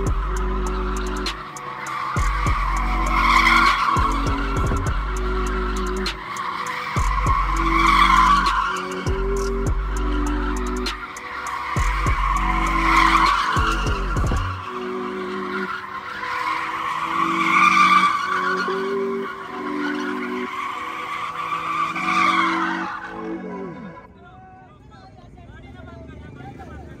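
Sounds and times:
pulsing low beat: 0.0s - 1.6s, 2.2s - 6.2s, 7.0s - 11.2s, 11.8s - 14.6s
car tyres squealing: 0.0s - 24.6s.

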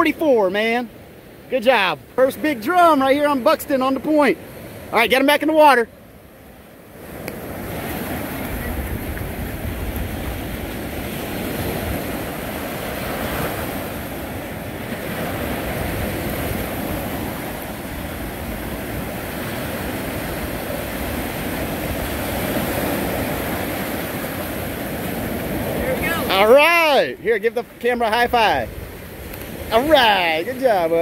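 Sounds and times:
ocean surf breaking: 0.0s - 31.0s
wind on microphone: 7.4s - 26.4s.

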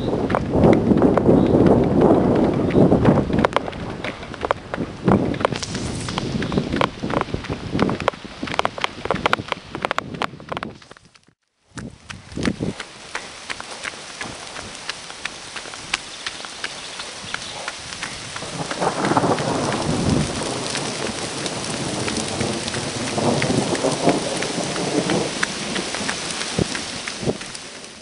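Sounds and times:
rolling thunder: 0.0s - 9.3s, 17.2s - 27.6s
rain drops ticking: 0.0s - 28.0s
rain falling: 0.0s - 28.0s.

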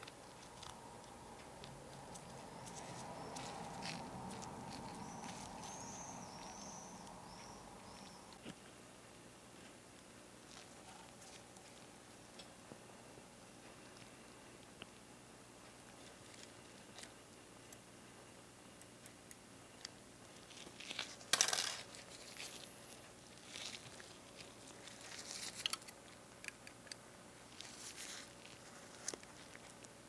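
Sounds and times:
small plastic parts clicking: 25.4s - 27.0s
rustling scrape: 27.5s - 29.5s.

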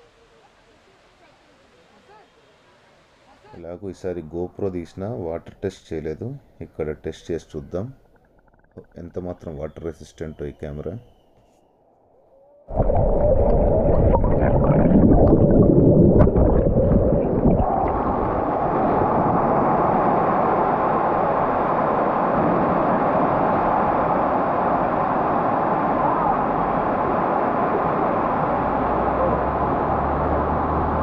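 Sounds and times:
muffled underwater gurgling: 6.6s - 11.0s, 12.7s - 19.8s
water rushing: 12.7s - 31.0s.

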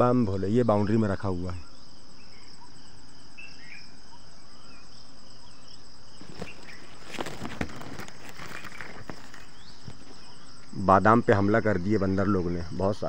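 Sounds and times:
insects droning: 0.0s - 13.0s
bird chirps: 0.5s - 13.0s
close rustling and crackling: 6.1s - 10.6s.

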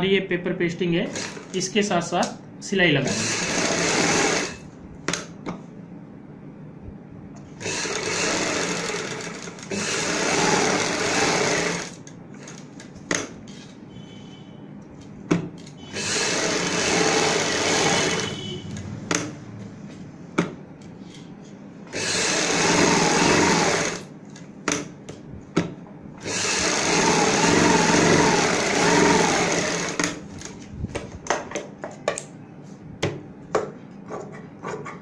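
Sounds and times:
sewing machine stitching: 1.1s - 1.6s, 3.0s - 4.6s, 7.6s - 12.6s, 15.9s - 18.4s, 21.9s - 24.1s, 26.2s - 30.2s.

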